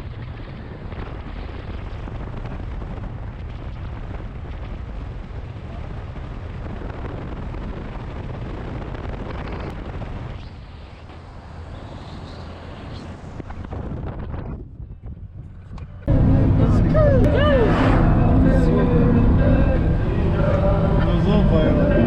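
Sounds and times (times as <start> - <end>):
wind buffeting microphone: 0.0 - 22.0
road noise: 7.8 - 22.0.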